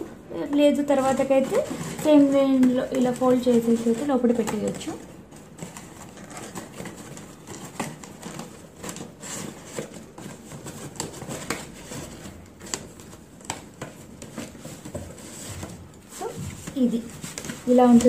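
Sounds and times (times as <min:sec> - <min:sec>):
stiff paper tapping and rustling: 0:00.0 - 0:18.0.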